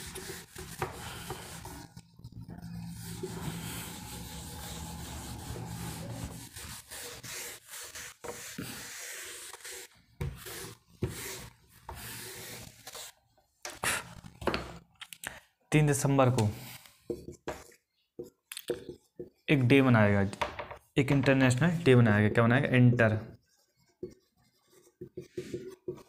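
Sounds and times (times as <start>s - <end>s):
scratchy rubbing and scraping: 0.0s - 13.1s, 23.3s - 26.0s.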